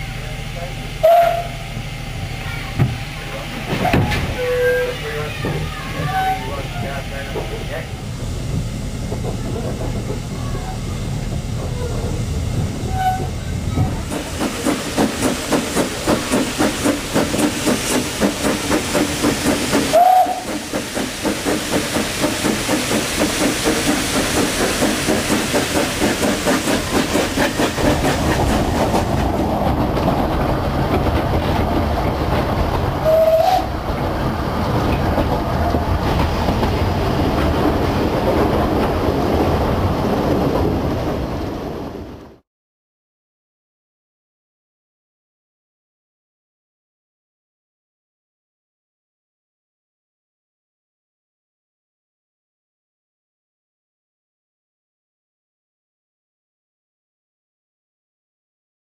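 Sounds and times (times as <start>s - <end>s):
steam locomotive chuffing: 0.0s - 40.6s
train running rumble: 0.0s - 42.4s
brief high squeal: 6.0s - 6.6s.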